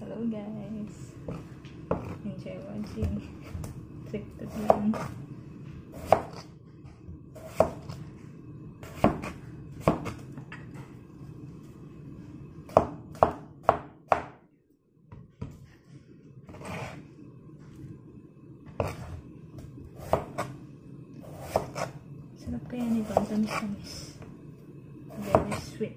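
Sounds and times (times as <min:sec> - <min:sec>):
knife chopping on cutting board: 0:06.0 - 0:06.5, 0:07.4 - 0:08.0, 0:08.9 - 0:10.2, 0:12.7 - 0:14.4, 0:20.0 - 0:20.5, 0:21.3 - 0:21.9.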